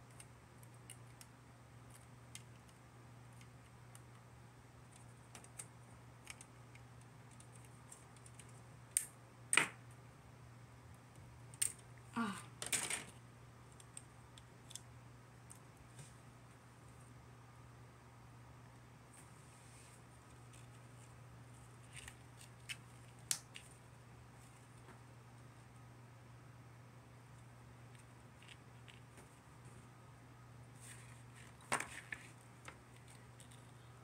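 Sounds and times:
sharp plastic snaps: 8.1 - 9.8
plastic parts clicking: 12.6 - 14.8.

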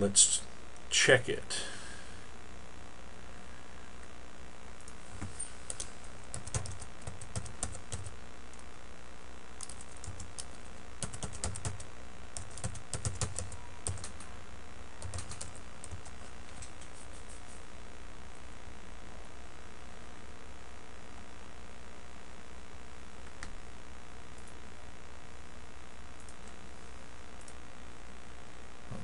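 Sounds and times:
typing on keyboard: 5.7 - 8.1, 9.6 - 11.8, 12.4 - 14.2, 15.0 - 16.8.

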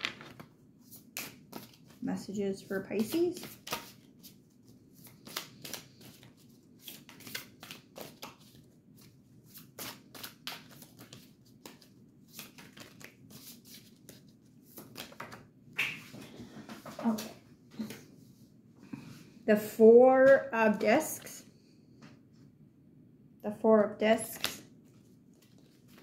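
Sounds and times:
cards being shuffled: 0.0 - 2.0, 2.7 - 16.2, 24.3 - 26.0
card rustle: 2.6 - 15.4.

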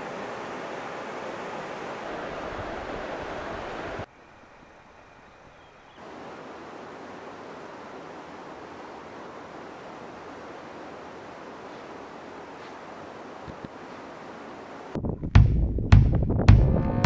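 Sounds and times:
running water rushing: 0.0 - 4.1, 6.0 - 15.0.

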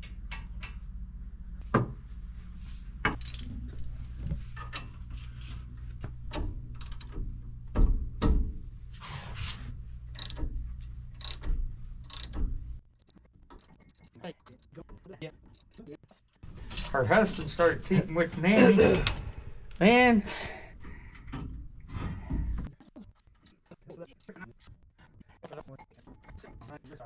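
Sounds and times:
steady low hum: 0.0 - 27.0
wrench clicking and clanking: 10.1 - 12.5, 13.5 - 17.6.

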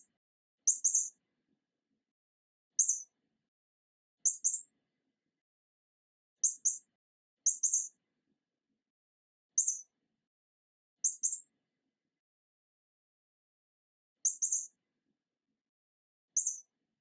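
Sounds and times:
high-pitched bird-like chirps: 0.7 - 1.2, 2.8 - 3.1, 4.3 - 4.7, 6.4 - 6.9, 7.5 - 8.0, 9.6 - 9.9, 11.0 - 11.5, 14.3 - 14.7, 16.4 - 16.7.

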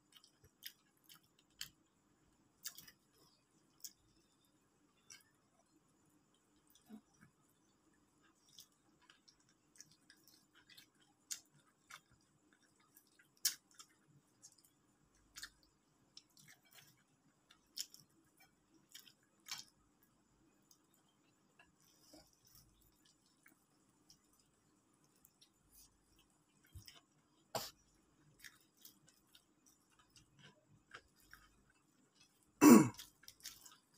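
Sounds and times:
quiet chewing: 0.0 - 33.9
crispy food crackling: 8.2 - 33.9.

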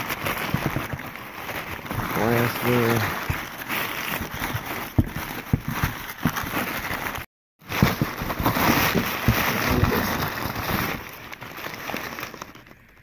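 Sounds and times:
newspaper rustling and crinkling: 0.0 - 13.0.

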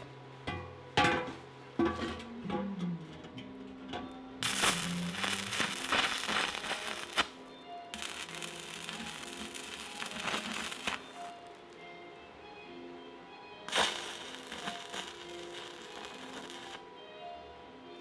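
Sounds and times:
background music: 0.0 - 18.0
welding arc crackling: 4.4 - 11.7, 13.7 - 16.8.

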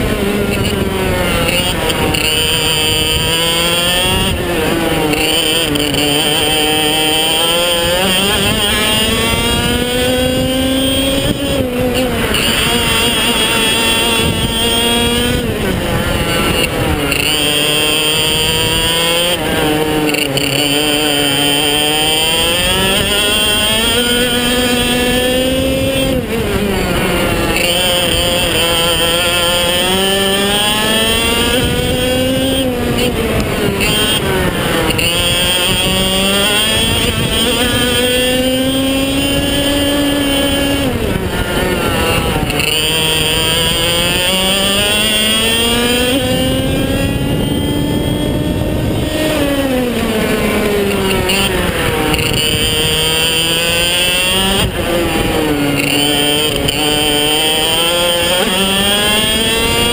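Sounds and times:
kart engine revving: 0.0 - 59.9.

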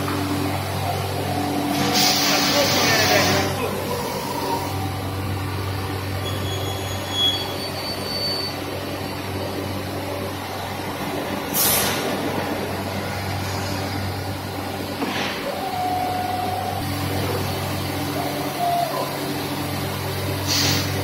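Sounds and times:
air hissing: 1.7 - 4.8, 11.5 - 12.2, 20.4 - 21.0.

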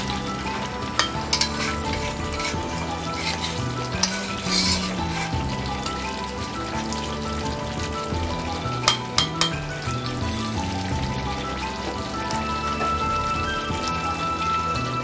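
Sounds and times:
spatula stirring: 0.0 - 6.7
curry sizzling in a pan: 0.0 - 15.0.

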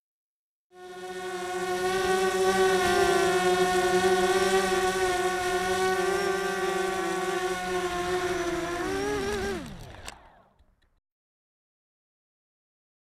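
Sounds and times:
quadcopter motors whining: 0.8 - 10.8.

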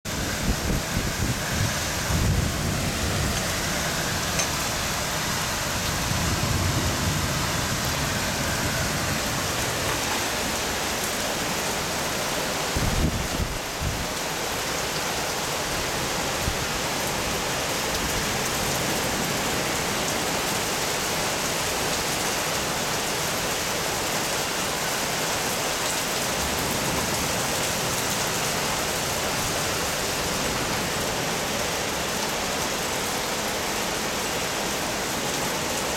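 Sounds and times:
heavy rain pouring: 0.0 - 35.9
wind rumbling on microphone: 0.1 - 14.2.

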